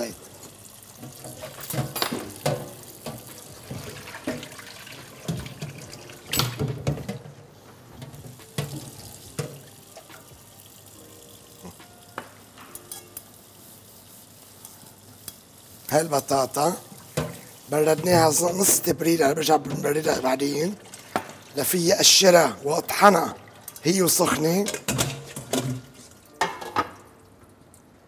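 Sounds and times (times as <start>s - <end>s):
tap running into metal sink: 1.0s - 7.3s, 8.0s - 10.2s.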